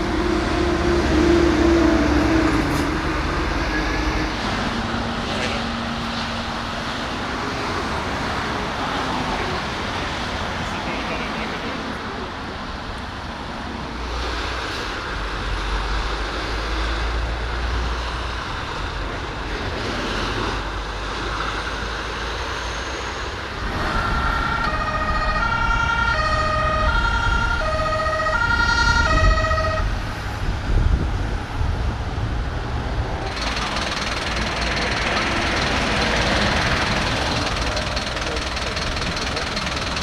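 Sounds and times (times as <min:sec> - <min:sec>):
motorway traffic: 0:00.0 - 0:40.0
two-tone siren: 0:23.9 - 0:30.1.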